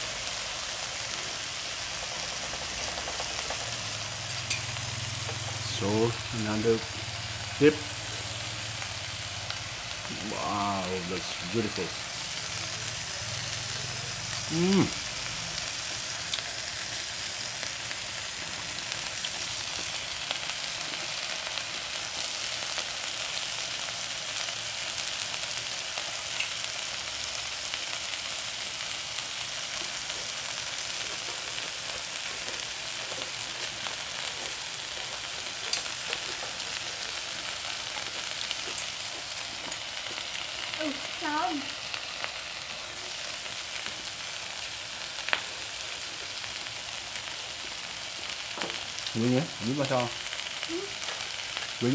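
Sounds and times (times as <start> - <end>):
meat and vegetables sizzling: 0.0 - 51.9
person speaking: 5.6 - 7.0, 10.1 - 12.0, 14.4 - 15.0, 40.8 - 41.7.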